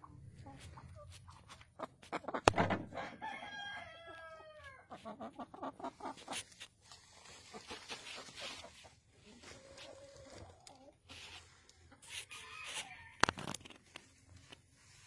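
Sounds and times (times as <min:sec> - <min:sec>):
chicken clucks: 0:00.0 - 0:14.6
sharp knock: 0:02.5 - 0:02.9
rooster crowing: 0:03.0 - 0:04.8.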